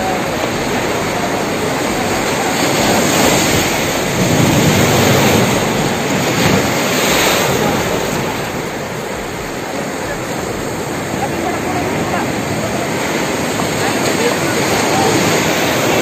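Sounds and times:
surf breaking over rocks: 0.0s - 16.0s.

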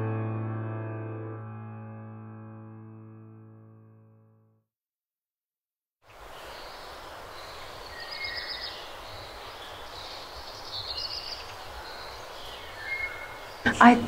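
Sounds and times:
small birds chirping: 6.1s - 14.0s.

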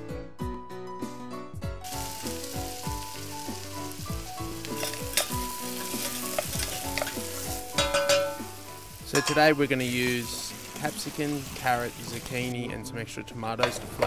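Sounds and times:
background piano music: 0.0s - 14.0s
onion sizzling in a pot: 1.8s - 12.6s.

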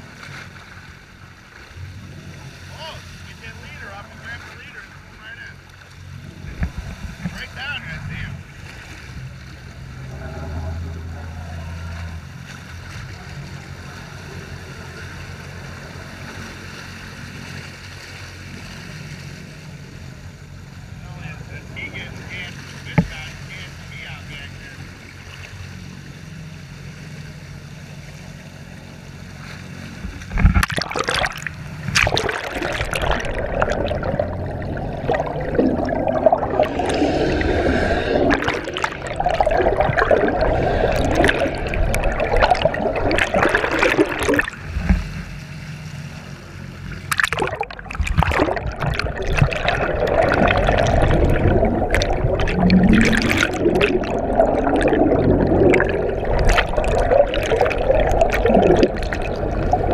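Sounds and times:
water rushing and gurgling: 0.0s - 59.9s
small clicks and splashes: 29.4s - 36.2s, 38.3s - 45.6s, 46.8s - 59.9s.

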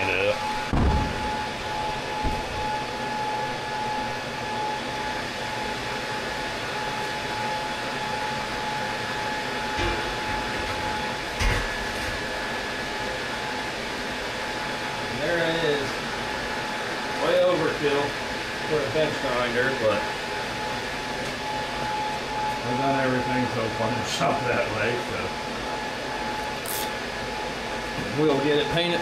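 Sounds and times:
fan-like mechanical hum: 0.0s - 29.0s.

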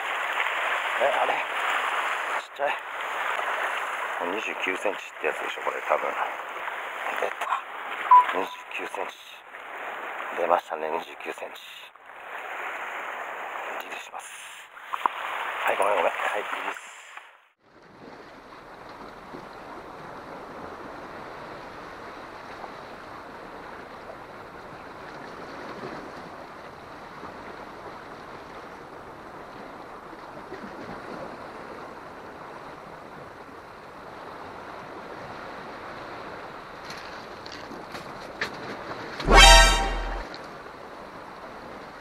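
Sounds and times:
surf washing against rocks: 0.0s - 10.5s, 12.1s - 17.2s.

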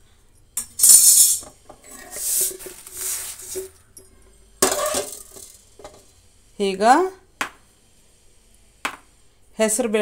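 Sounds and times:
dry grains rattling on metal: 0.6s - 3.8s, 4.6s - 5.9s.

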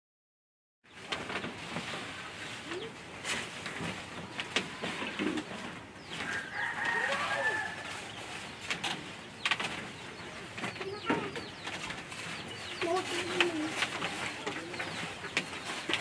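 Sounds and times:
rooster crowing: 6.2s - 8.0s.

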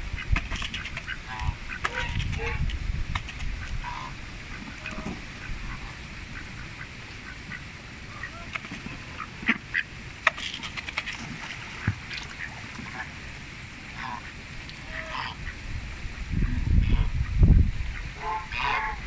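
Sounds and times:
duck bill clicking in feed bowl: 0.2s - 1.2s, 3.1s - 3.8s, 10.2s - 11.2s.

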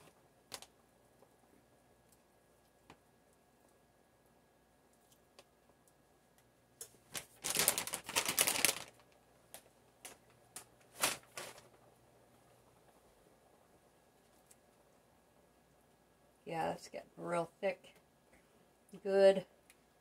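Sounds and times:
plastic bag clicks: 7.1s - 11.6s
plastic bag crinkling: 7.1s - 11.8s.

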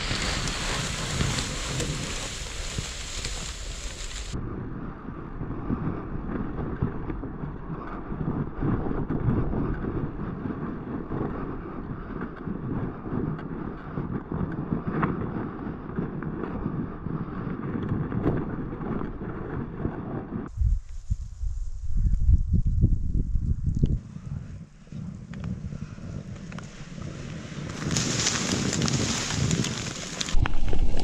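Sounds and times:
wind buffeting microphone: 0.0s - 31.0s.

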